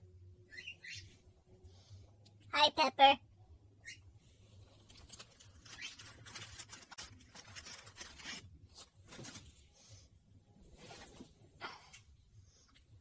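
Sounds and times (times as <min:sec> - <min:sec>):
paper bag rustling: 0:04.8 - 0:09.6.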